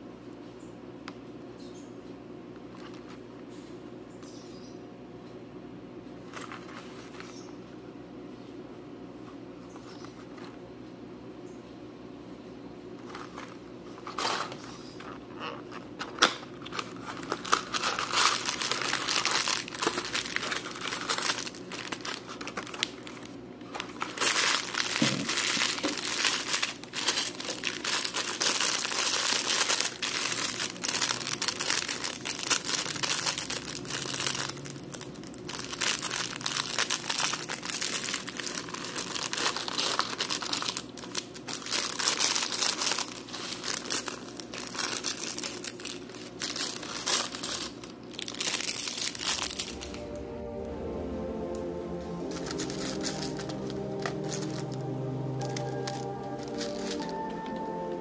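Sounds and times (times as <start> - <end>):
plastic bag crinkling and tearing: 13.0 - 51.1, 52.1 - 58.0.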